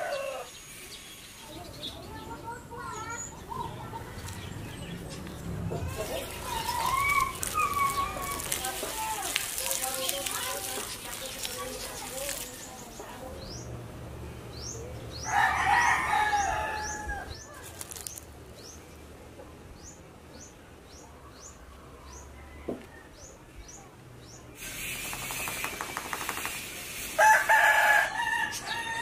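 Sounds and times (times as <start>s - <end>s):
rooster crowing: 0.0s - 0.6s, 15.2s - 17.3s, 27.2s - 29.0s
wing flapping: 24.7s - 27.1s.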